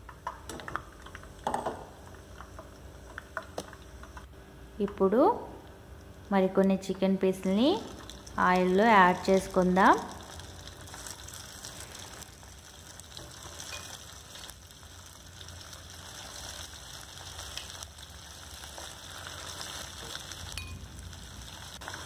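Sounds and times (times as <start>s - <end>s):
chicken deep-frying in oil: 7.4s - 22.0s.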